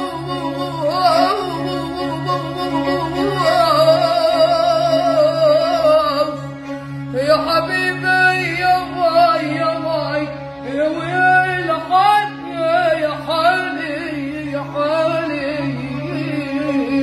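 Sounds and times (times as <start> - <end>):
boy singing: 0.0 - 6.4, 7.1 - 17.0
bowed violin: 0.0 - 17.0.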